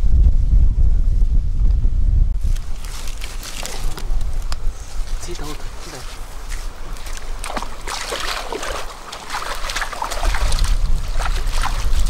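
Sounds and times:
low rumble: 0:00.0 - 0:05.0
hands splashing in river water: 0:06.4 - 0:12.0.

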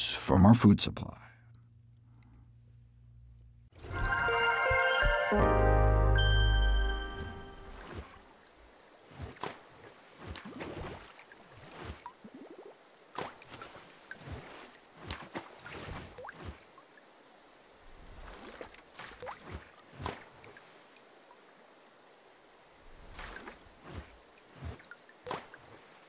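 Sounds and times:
rising water bloop: 0:06.9 - 0:08.5
water plops splashes and drips: 0:07.5 - 0:17.2, 0:17.9 - 0:21.6, 0:22.9 - 0:26.0.

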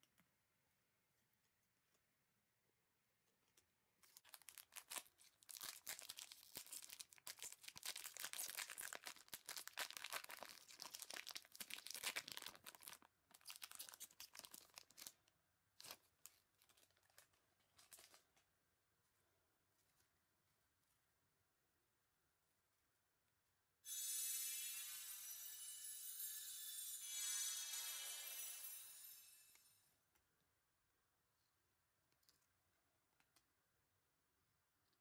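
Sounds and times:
card pack wrapper tearing: 0:04.0 - 0:15.2.

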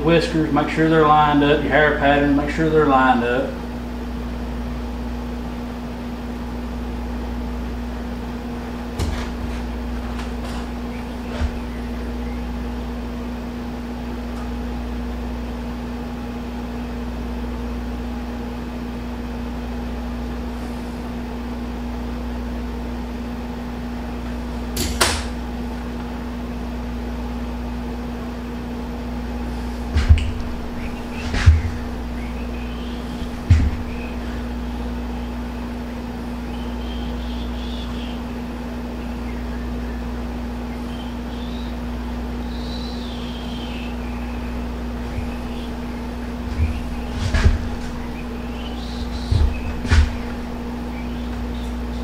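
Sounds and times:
motor hum: 0:00.0 - 0:52.0
short knocks: 0:08.6 - 0:12.5, 0:29.4 - 0:35.1, 0:43.7 - 0:52.0.

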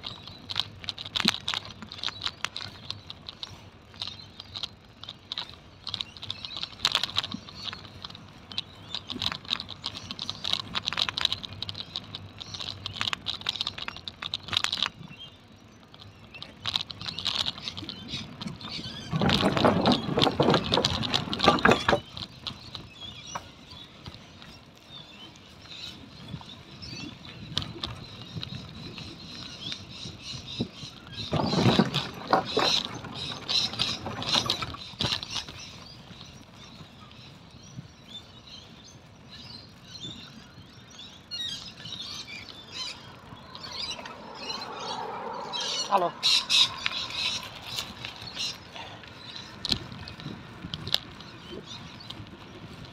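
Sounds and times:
bicycle clicking and rattling: 0:00.0 - 0:52.9
rushing sound: 0:42.9 - 0:48.3.

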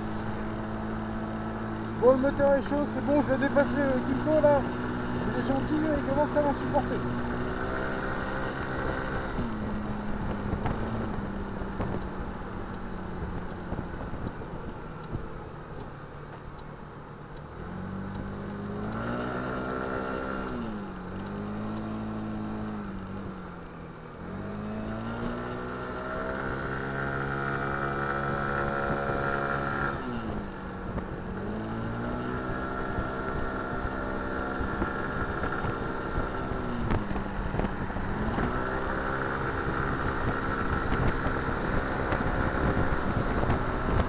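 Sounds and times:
scooter engine running: 0:00.0 - 0:44.0
wind on microphone: 0:28.7 - 0:44.0.

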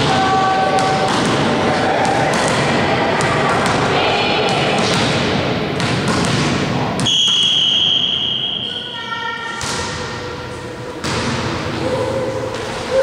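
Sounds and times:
volleyball bouncing on floor: 0:00.0 - 0:07.8, 0:09.5 - 0:10.2, 0:11.0 - 0:11.6
voices echoing in a hall: 0:00.0 - 0:13.0.

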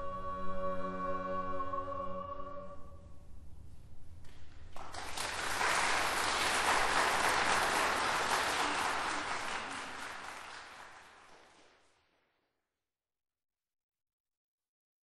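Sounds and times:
audience applause: 0:04.7 - 0:11.9.

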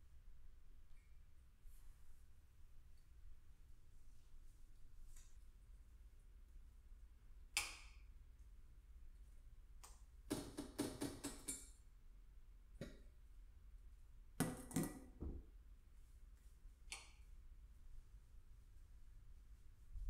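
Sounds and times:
objects knocking in a cabinet: 0:14.4 - 0:15.5.

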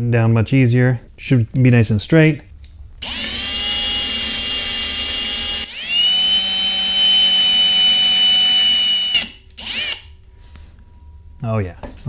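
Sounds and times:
cordless drill whining: 0:03.0 - 0:10.1.

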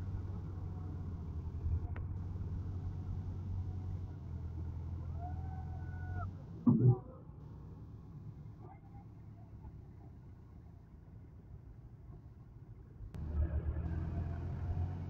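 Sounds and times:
tractor diesel engine running: 0:00.0 - 0:09.4, 0:13.2 - 0:15.0.

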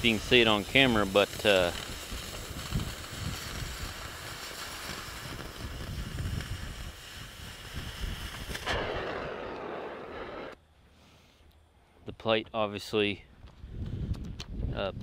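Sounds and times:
cutting torch hissing: 0:00.0 - 0:10.6
soft flame hiss: 0:00.0 - 0:11.6.

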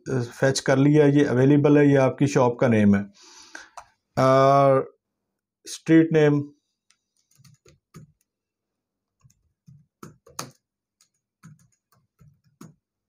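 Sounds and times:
keyboard key clicks: 0:09.2 - 0:12.8.

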